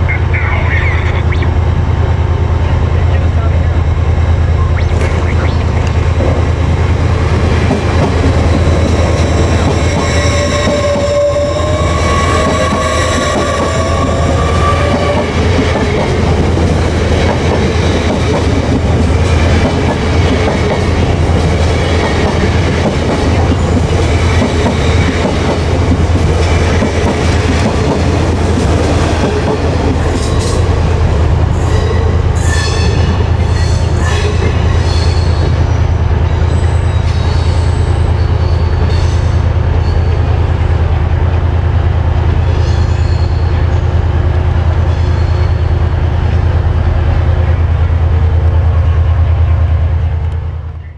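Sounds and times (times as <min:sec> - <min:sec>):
train rumbling: 0:00.0 - 0:50.9
train wheels squealing: 0:08.5 - 0:15.4, 0:31.7 - 0:40.3, 0:42.4 - 0:43.8, 0:44.8 - 0:45.8.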